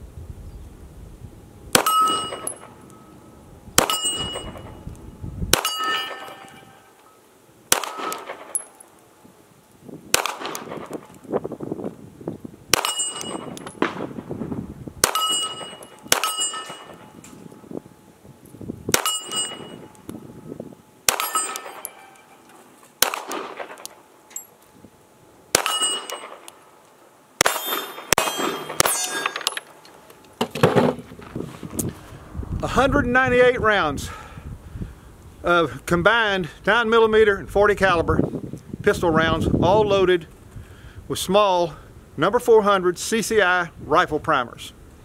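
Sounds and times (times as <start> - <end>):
pistol shots: 1.7 - 2.7, 3.8 - 4.7, 5.5 - 6.8, 7.7 - 8.8, 10.1 - 11.1, 12.7 - 14.2, 15.0 - 17.2, 18.9 - 19.8, 21.0 - 22.4, 23.0 - 24.0, 25.5 - 26.6, 27.4 - 29.5
bullet clanging on steel plate: 1.8 - 2.8, 3.8 - 4.8, 5.6 - 7.2, 12.8 - 13.9, 15.1 - 17.4, 19.0 - 20.0, 21.1 - 22.6, 25.6 - 26.6, 27.4 - 30.7.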